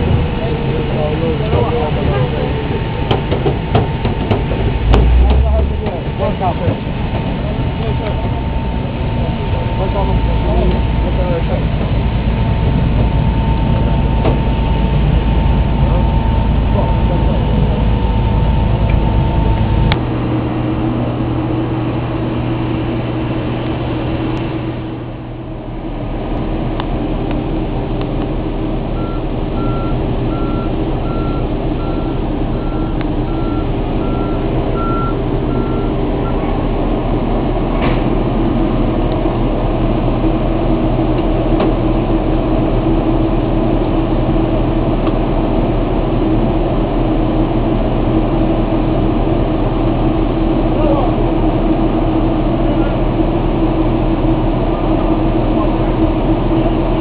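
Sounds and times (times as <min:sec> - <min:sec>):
steady engine drone: 0:00.0 - 0:57.0
reversing alarm beeping: 0:07.7 - 0:20.0, 0:28.9 - 0:36.4.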